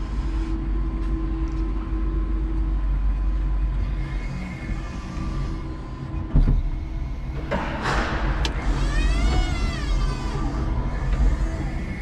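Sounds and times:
low hum: 0.0 - 12.0
electric motor whine: 3.7 - 7.4, 8.5 - 12.0.

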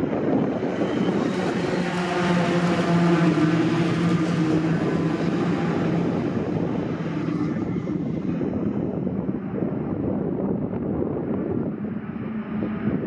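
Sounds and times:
racing truck engines revving: 0.0 - 9.7.

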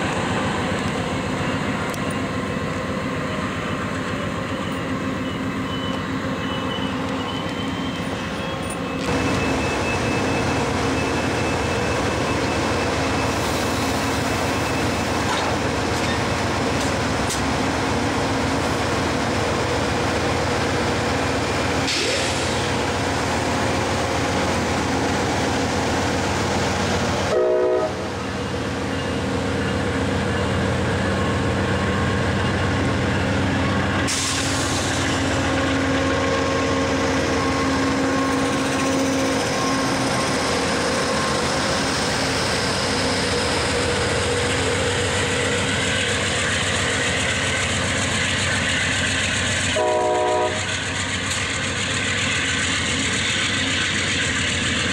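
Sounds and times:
diesel locomotive running: 0.0 - 54.9
passenger train rolling past: 0.0 - 54.9
brief tones: 4.5 - 13.4.

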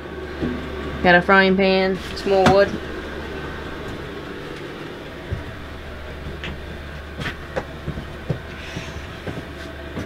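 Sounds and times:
low steady rumble and hum: 0.0 - 10.0
soft knocks: 3.6 - 10.0.

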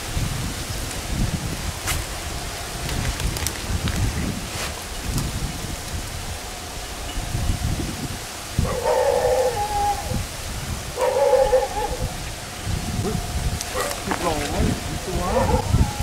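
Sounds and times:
flat pitched calls: 8.5 - 16.0.

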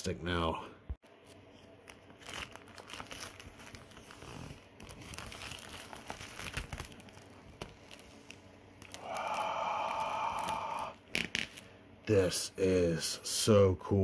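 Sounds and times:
plastic wrap crinkling: 1.2 - 11.7
plastic wrap tearing rasp: 2.1 - 11.6.

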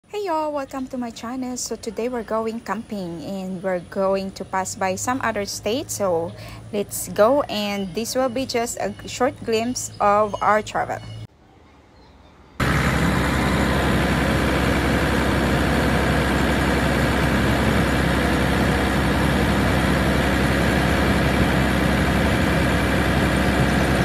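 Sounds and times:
vehicle engine idling: 12.6 - 24.0.

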